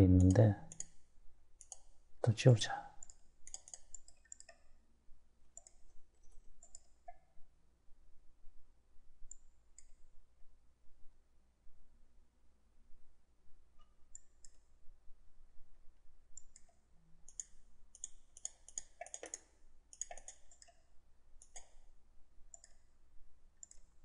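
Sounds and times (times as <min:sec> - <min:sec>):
computer mouse clicks: 0:00.2 - 0:02.0, 0:02.9 - 0:04.8, 0:05.5 - 0:07.4, 0:09.3 - 0:10.1, 0:13.8 - 0:14.7, 0:16.4 - 0:21.9, 0:22.5 - 0:22.9, 0:23.6 - 0:24.0.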